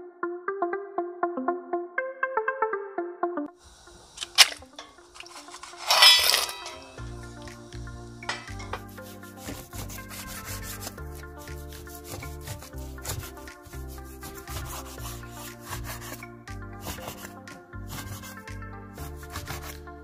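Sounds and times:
soft background music: 0.0 - 20.0
knife slicing meat on wooden board: 8.8 - 13.5.

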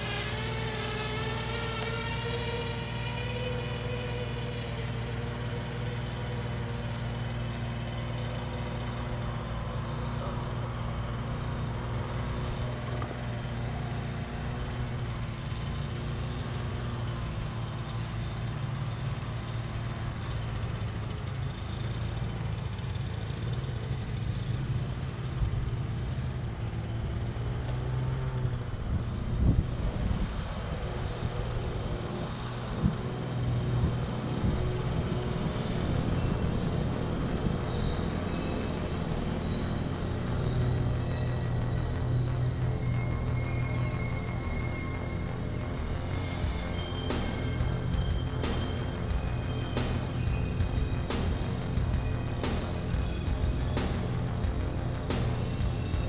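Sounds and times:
drone propellers humming: 0.0 - 17.5, 33.6 - 56.0.

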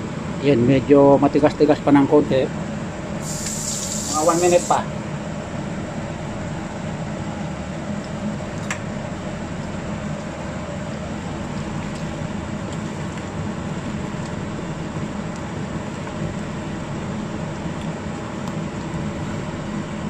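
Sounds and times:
steady hum: 0.0 - 20.0
sauce simmering: 3.2 - 4.7.

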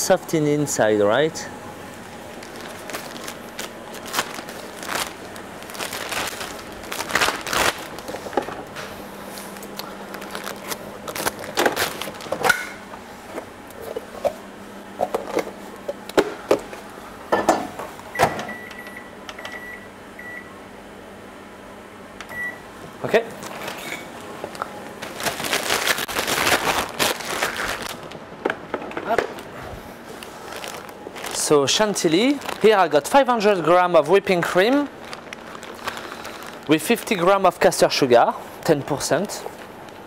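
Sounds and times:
microwave beeping: 17.3 - 20.8, 22.2 - 22.8.

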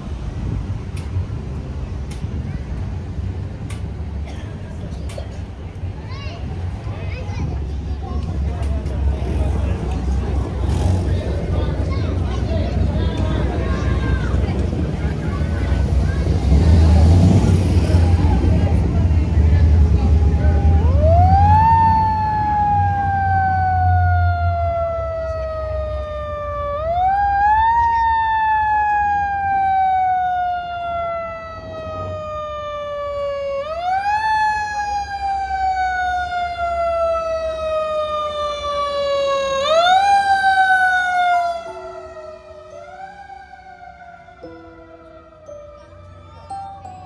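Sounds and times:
low vehicle rumble: 0.0 - 47.0
fire engine siren: 12.7 - 47.0.

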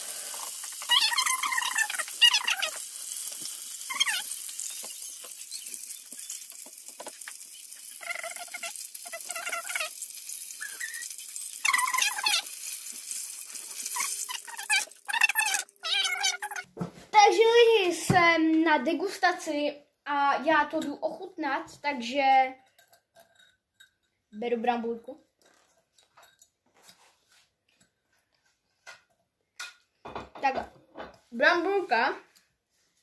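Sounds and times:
chicken sizzling in hot oil: 0.0 - 16.6
short squeaky cry-like sounds: 0.7 - 2.8, 3.7 - 6.5, 7.6 - 12.6, 13.8 - 16.7.

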